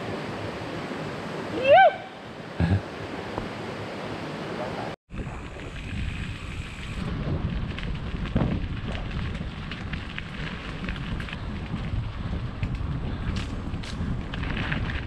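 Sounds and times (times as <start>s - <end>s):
bike tyres crunching on dirt: 5.1s - 15.0s
wind on microphone: 5.1s - 15.0s
bike clicks and clatters: 5.2s - 15.0s.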